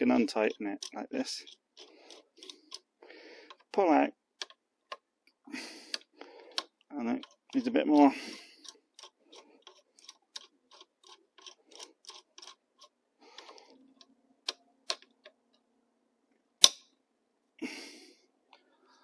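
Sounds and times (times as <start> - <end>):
small metal clicks: 0.2 - 2.9, 5.9 - 15.6.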